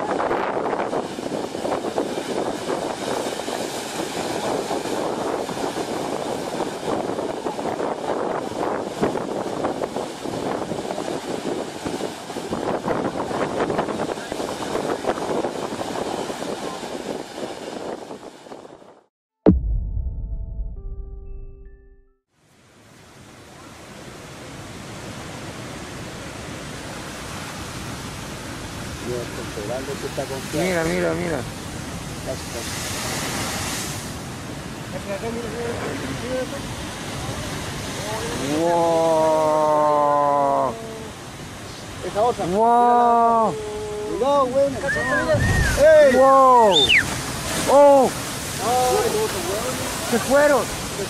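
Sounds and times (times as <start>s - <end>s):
surf rushing over rocks: 0.0s - 18.8s, 23.0s - 51.0s
wind on microphone: 0.0s - 19.1s, 43.2s - 51.0s.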